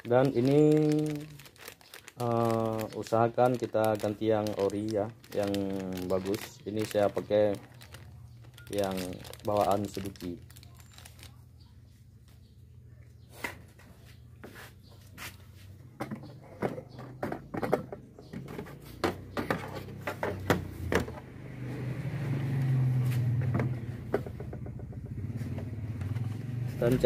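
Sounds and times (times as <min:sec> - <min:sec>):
plastic clicks and knocks: 0:16.0 - 0:21.2.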